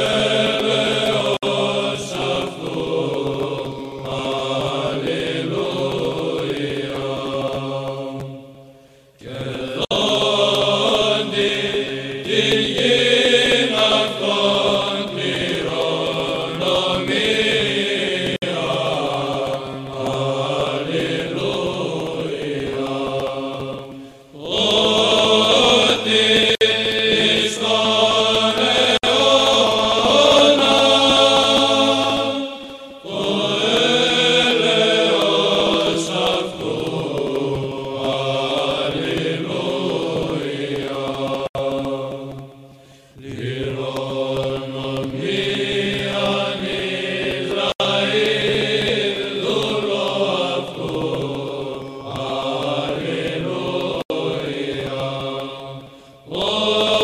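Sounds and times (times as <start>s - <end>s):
held vocal drone: 0.0s - 57.0s
low voices chanting: 0.0s - 57.0s.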